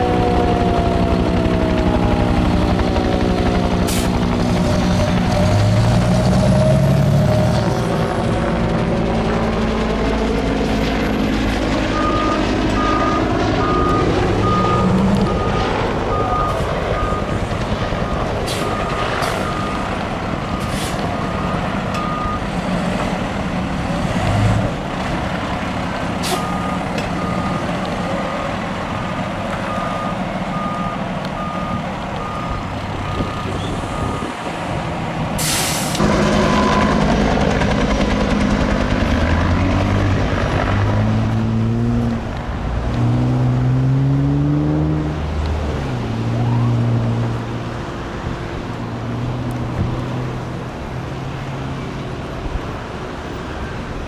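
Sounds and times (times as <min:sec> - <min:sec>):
diesel engine running: 0:00.0 - 0:54.0
air brakes hissing: 0:20.6 - 0:21.1, 0:26.2 - 0:26.6, 0:35.4 - 0:36.0
backup alarm beeps: 0:29.7 - 0:34.3.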